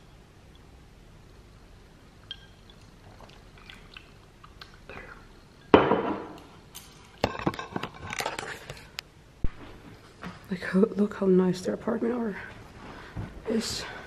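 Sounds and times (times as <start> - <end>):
glass set down on table: 5.7 - 6.4.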